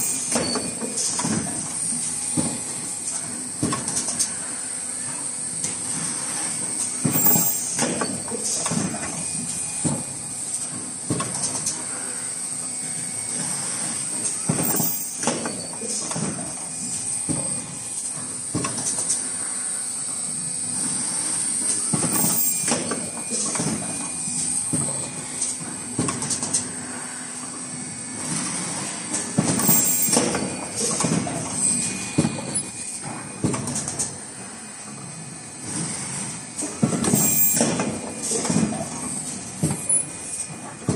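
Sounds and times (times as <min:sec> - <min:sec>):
machine high-pitched hiss: 0:00.0 - 0:33.4, 0:34.0 - 0:40.8
production line mechanical din: 0:00.0 - 0:40.9
machine knocks and clunks: 0:02.3 - 0:02.7, 0:03.6 - 0:04.0, 0:07.0 - 0:09.2, 0:09.8 - 0:11.6, 0:17.2 - 0:19.1, 0:24.6 - 0:26.6, 0:29.2 - 0:34.1, 0:36.6 - 0:40.9
mechanical clacks and knocks: 0:21.5 - 0:26.7, 0:28.3 - 0:34.2.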